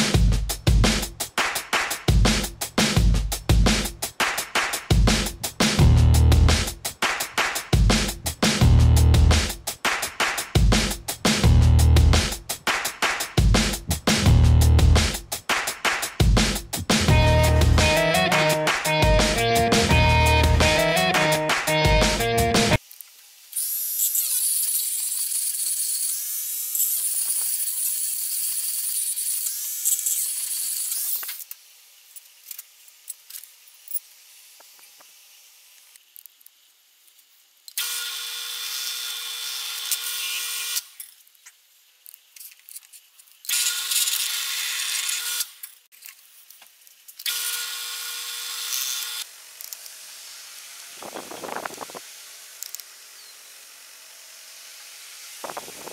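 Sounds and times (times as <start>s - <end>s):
rotary tool grinding steel: 23.5s - 31.6s, 37.7s - 41.2s, 42.0s - 45.8s, 47.0s - 50.0s, 50.6s - 55.9s.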